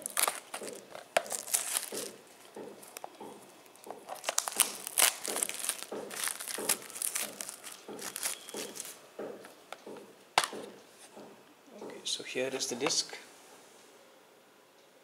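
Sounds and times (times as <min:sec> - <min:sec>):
plastic shrink-wrap crinkling: 0:00.0 - 0:09.0.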